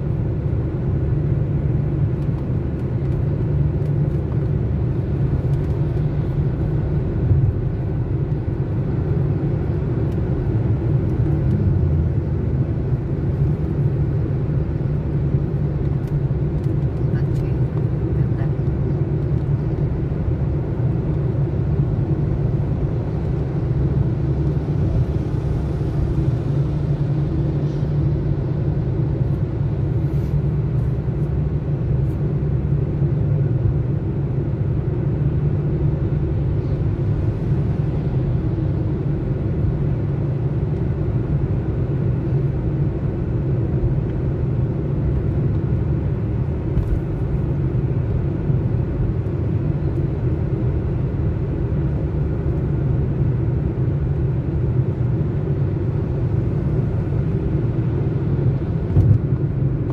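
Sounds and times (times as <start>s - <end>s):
car engine rumble: 0.0s - 59.9s
tyre-on-road noise: 2.1s - 18.1s.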